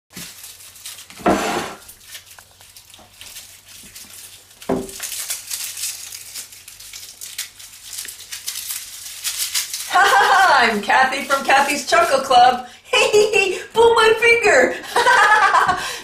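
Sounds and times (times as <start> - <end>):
garlic bulbs crunching: 0.1 - 12.6
papery skins crackling: 0.1 - 14.4.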